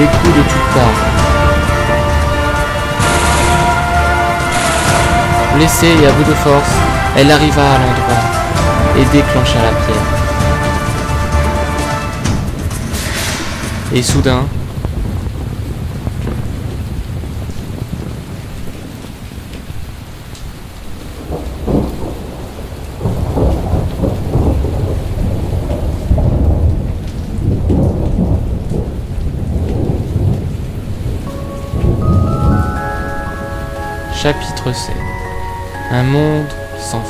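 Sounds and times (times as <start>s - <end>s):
deep rolling thunder: 0.0s - 20.0s, 20.9s - 34.2s
steady rain: 0.0s - 37.0s
chiming musical tone: 31.3s - 37.0s.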